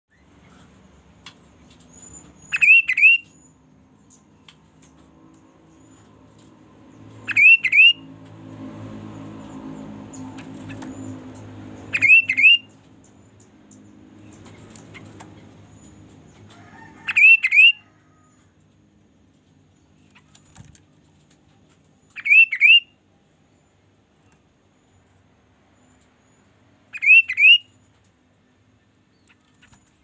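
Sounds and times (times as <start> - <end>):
bird whistled calls: 1.9 - 3.5, 7.2 - 8.0, 11.9 - 12.7, 17.1 - 17.8, 22.2 - 22.9, 27.0 - 27.7.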